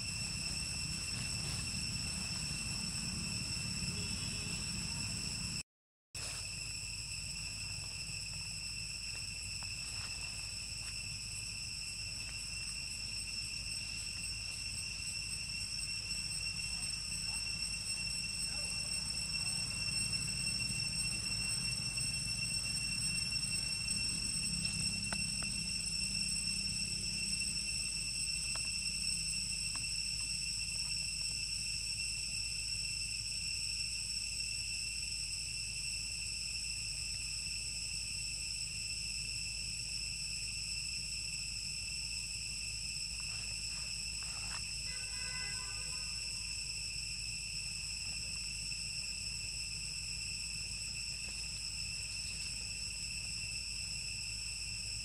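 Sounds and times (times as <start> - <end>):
insects trilling: 0.0 - 5.6, 6.2 - 55.0
low steady rumble: 0.0 - 5.6.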